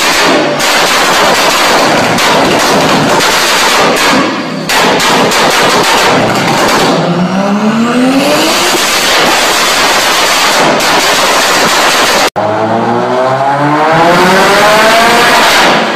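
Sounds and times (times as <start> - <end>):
exhaust backfire pops: 0.0 - 7.1
car engine revving: 6.1 - 10.0, 12.3 - 15.9.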